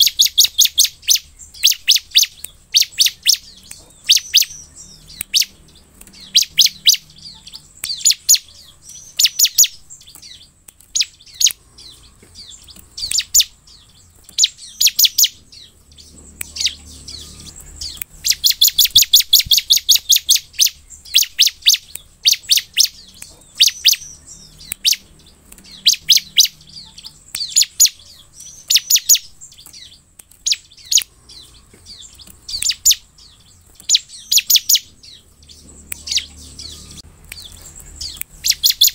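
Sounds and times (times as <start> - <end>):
bird high chirps: 0.0 - 38.9
bird rapid trill: 0.0 - 38.9.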